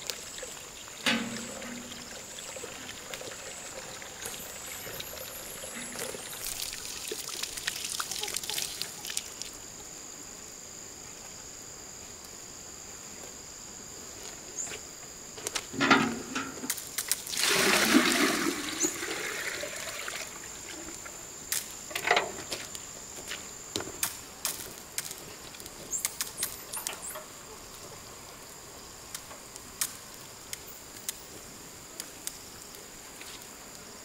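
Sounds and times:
water pouring into metal watering can: 0:00.0 - 0:09.4, 0:16.0 - 0:21.2
bucket knocking: 0:01.0 - 0:03.0, 0:15.8 - 0:16.7.

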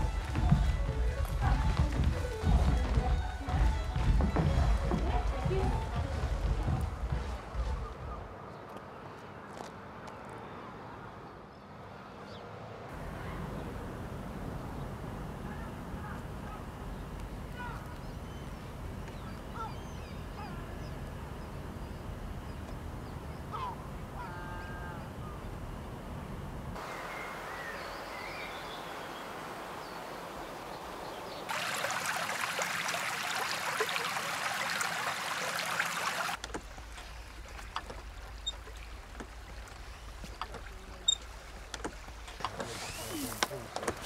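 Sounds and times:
stream water rushing: 0:00.0 - 0:07.8, 0:26.8 - 0:44.0
small birds chirping: 0:14.7 - 0:25.7.

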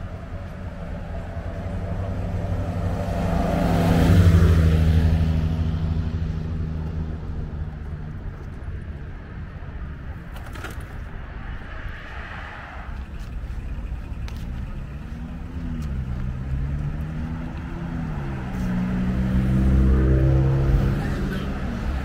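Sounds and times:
passing cars rumbling: 0:00.0 - 0:22.0
vehicle engine changing speed: 0:09.8 - 0:22.0.

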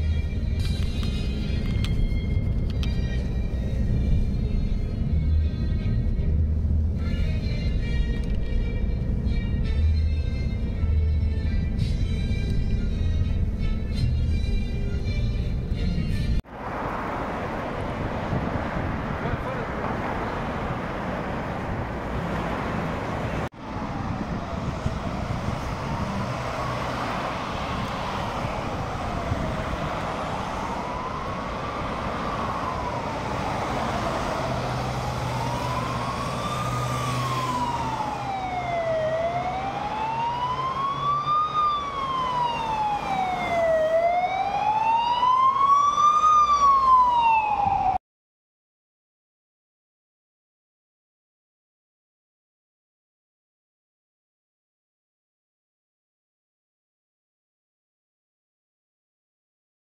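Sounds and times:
road traffic hum: 0:00.0 - 0:48.0
ambulance siren wailing: 0:23.1 - 0:48.0.

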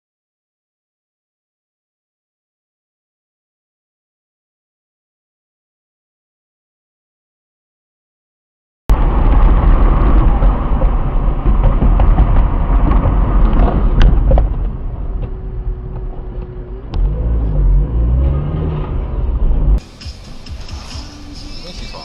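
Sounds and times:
car road and engine rumble: 0:08.9 - 0:22.0.

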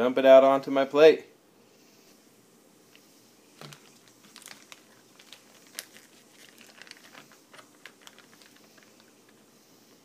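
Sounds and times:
plastic bag crinkling: 0:03.6 - 0:09.5.

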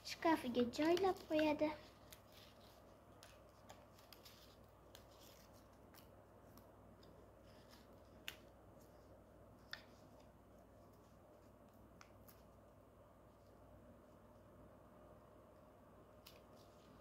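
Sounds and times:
paper rustling: 0:00.4 - 0:11.5
sharp paper ticks: 0:00.5 - 0:07.2.

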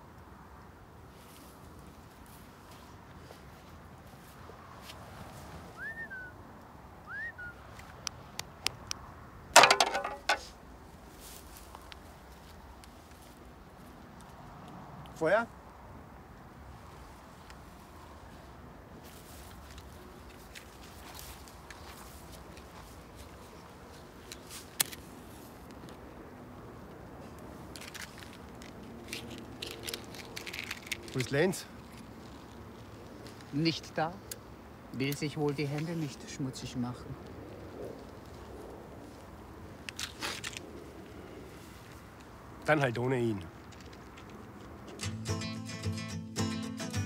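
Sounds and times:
metal spades clattering: 0:09.6 - 0:10.5.

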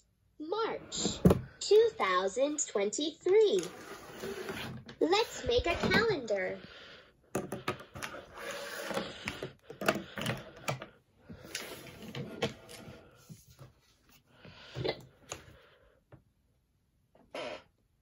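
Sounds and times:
objects clicking and tapping on desk: 0:07.3 - 0:10.9.

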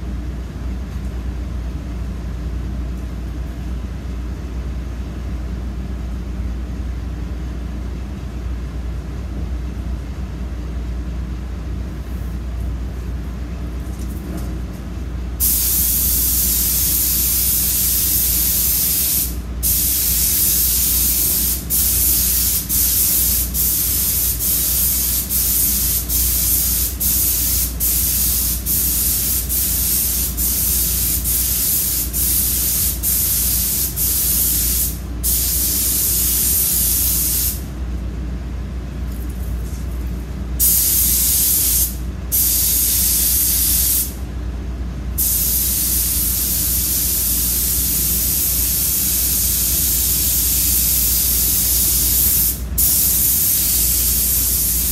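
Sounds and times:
steady low hum: 0:00.0 - 0:54.9
paint spray gun hissing: 0:15.4 - 0:37.6, 0:40.6 - 0:44.2, 0:45.2 - 0:54.9.

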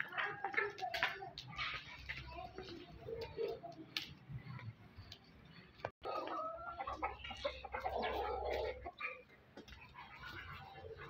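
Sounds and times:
chickens clucking: 0:06.0 - 0:11.0.

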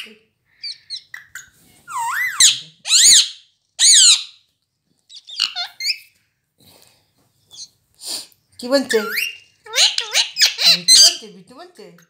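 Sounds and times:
parakeet chirps: 0:00.6 - 0:04.4, 0:05.1 - 0:06.1, 0:08.9 - 0:11.2
parakeet wavering calls: 0:00.6 - 0:04.4, 0:05.1 - 0:06.1, 0:08.9 - 0:11.2.

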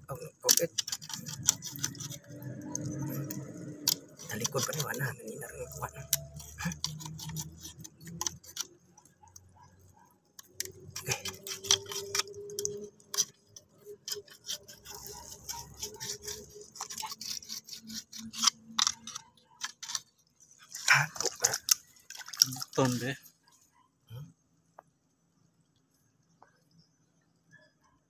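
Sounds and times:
rod clicking and scraping in burrow: 0:00.1 - 0:23.6
muddy water splashing: 0:20.6 - 0:23.3.

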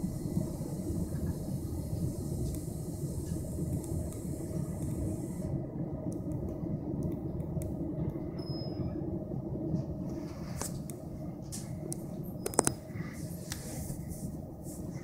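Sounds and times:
passenger train rumble: 0:00.0 - 0:15.0
faint clicks: 0:06.1 - 0:08.2.

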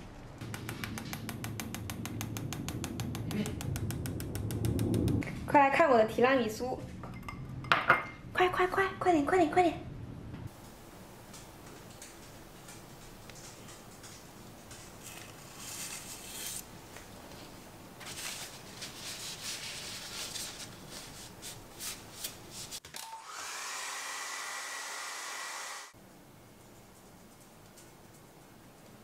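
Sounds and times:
hair dryer blowing: 0:23.0 - 0:26.0.

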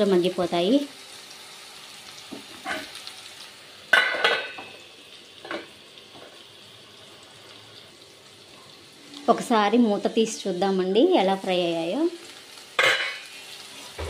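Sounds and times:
okra sizzling in a pan: 0:00.0 - 0:14.0
metal lid clattering on pan: 0:03.9 - 0:04.7, 0:12.8 - 0:13.2.

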